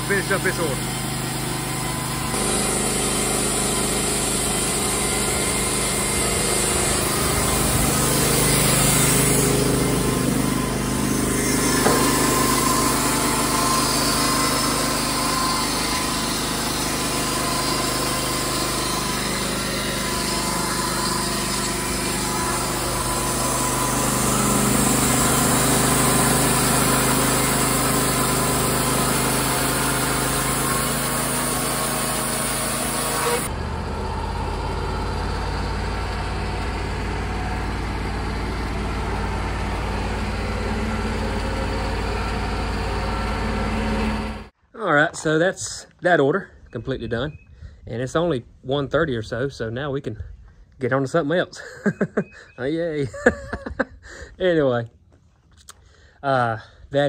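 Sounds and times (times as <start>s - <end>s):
band sawmill sawing wood: 0.0s - 44.6s.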